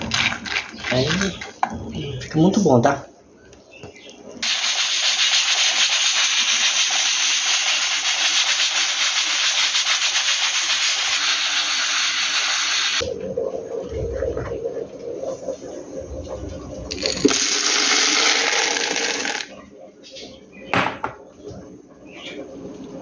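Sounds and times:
pressure cooker steam hissing: 4.4 - 13.0.

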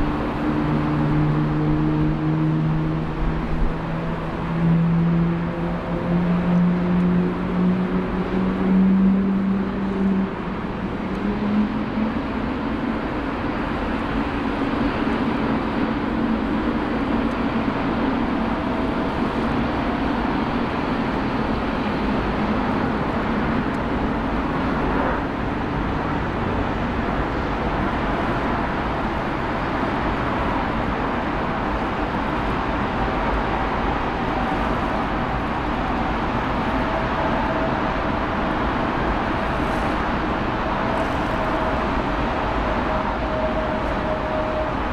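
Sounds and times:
faint engine whine: 0.0 - 44.9
jet engine rush: 9.4 - 44.9.

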